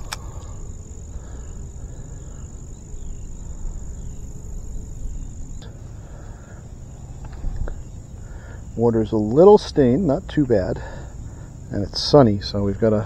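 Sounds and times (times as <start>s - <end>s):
sharp click: 0.0s - 0.5s
insects trilling: 0.0s - 13.0s.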